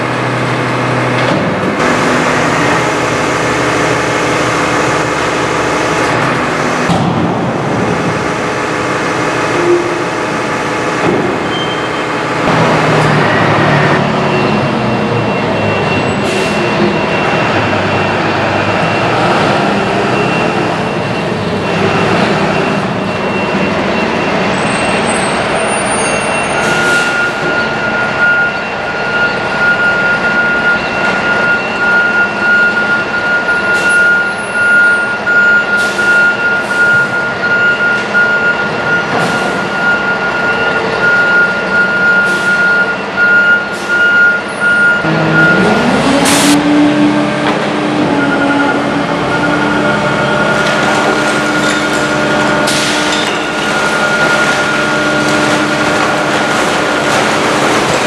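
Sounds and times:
diesel truck engine running: 0.0s - 58.0s.

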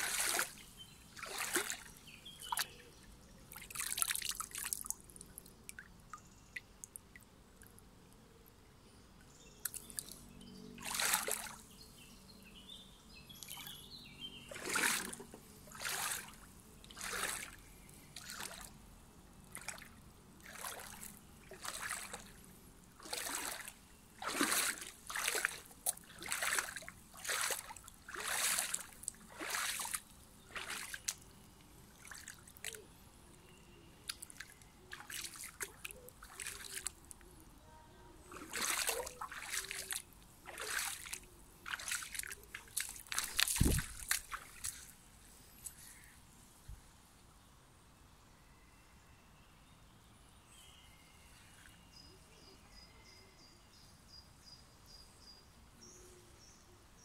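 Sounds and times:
footsteps splashing in stony stream: 0.0s - 2.8s, 3.5s - 5.2s, 10.8s - 11.6s, 14.5s - 17.6s, 18.2s - 18.7s, 19.5s - 22.4s, 23.0s - 31.3s, 31.9s - 32.8s, 34.1s - 37.1s, 38.3s - 45.0s.

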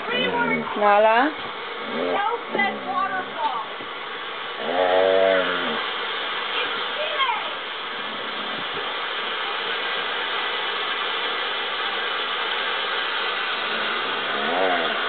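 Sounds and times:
husky whining: 1.8s - 3.5s, 13.6s - 15.0s.

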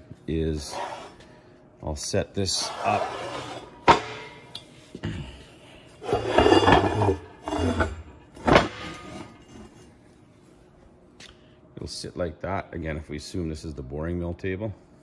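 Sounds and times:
metal scraping: 2.5s - 4.3s, 6.0s - 9.8s.

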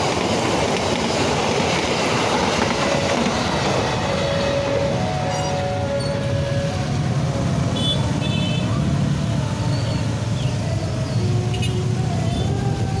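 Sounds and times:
motorcycle engines rumbling: 4.0s - 13.0s.

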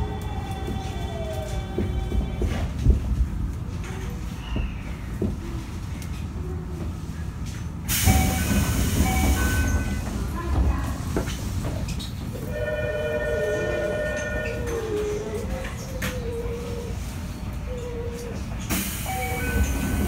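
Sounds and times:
loud hiss of air: 7.9s - 9.7s, 18.7s - 20.0s
train inverter whine: 12.3s - 17.6s.

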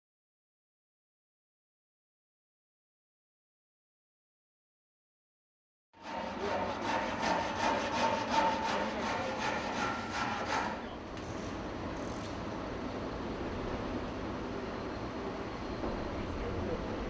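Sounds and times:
hand saw cutting wood: 6.0s - 10.9s.

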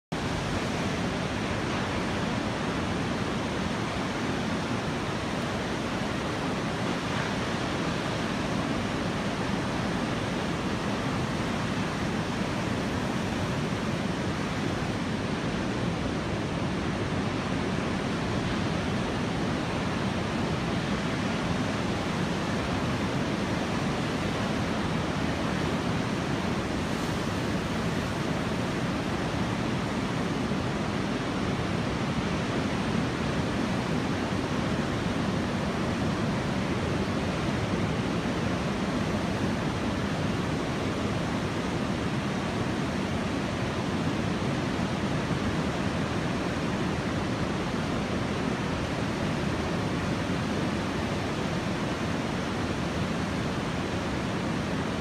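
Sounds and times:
surf breaking on beach: 20.8s - 34.4s.

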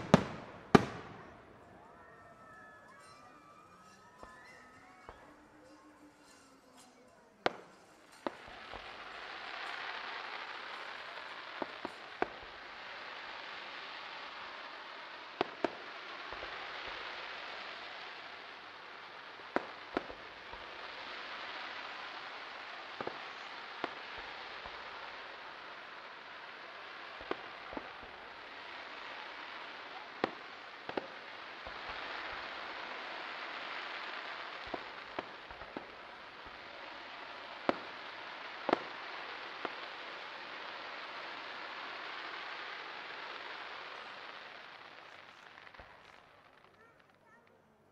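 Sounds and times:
firework shells bursting: 0.0s - 1.6s
crackling hiss: 0.0s - 47.5s.

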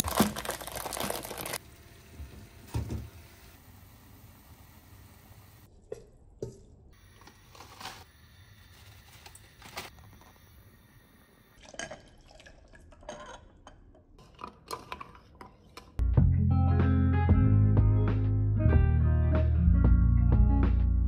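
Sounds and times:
faint liquid sounds: 11.2s - 15.9s.

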